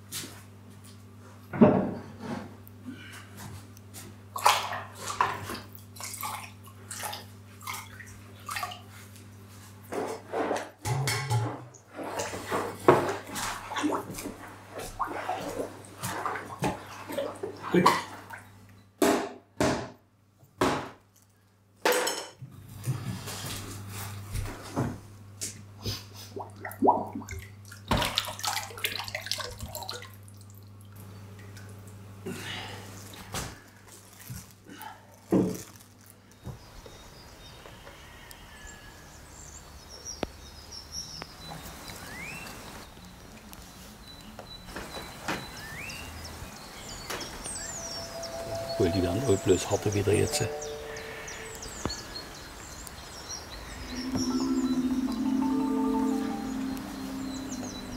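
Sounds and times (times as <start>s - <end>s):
liquid sloshing in a bucket: 4.4s - 9.2s, 11.9s - 18.5s, 26.4s - 31.9s.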